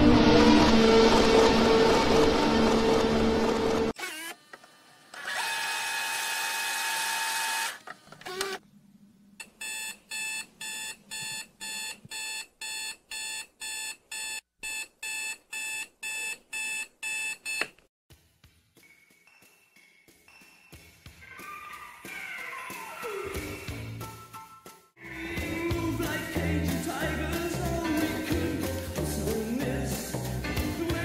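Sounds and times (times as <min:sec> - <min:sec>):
electronic alarm beeping: 0:09.6 - 0:17.7
background music: 0:18.1 - 0:31.0.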